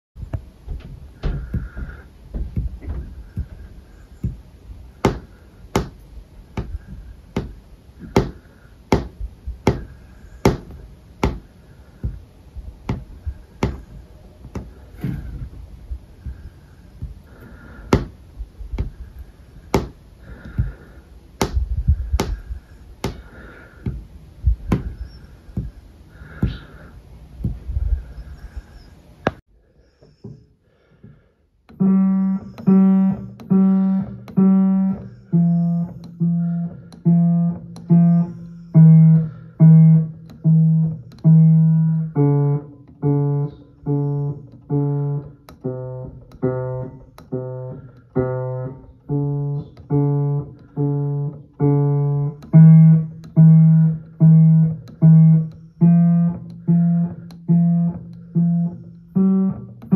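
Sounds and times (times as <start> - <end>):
fingertips tapping on wood: 0.2 - 29.4, 30.0 - 59.9.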